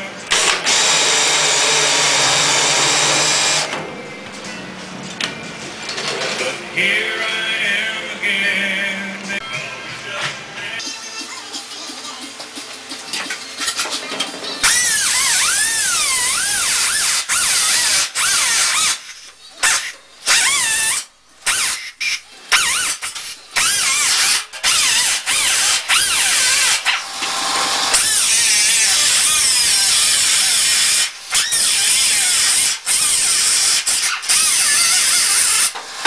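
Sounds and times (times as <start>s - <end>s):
pneumatic cut-off wheel cutting metal: 0.3s - 3.8s, 14.6s - 36.0s.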